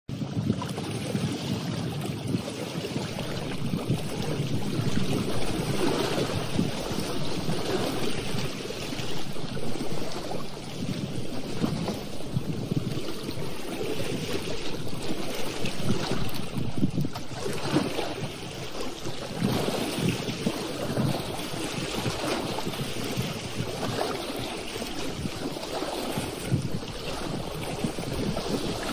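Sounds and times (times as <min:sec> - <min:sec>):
small waves splashing: 0:00.1 - 0:28.9
wind blowing on microphone: 0:00.1 - 0:28.9.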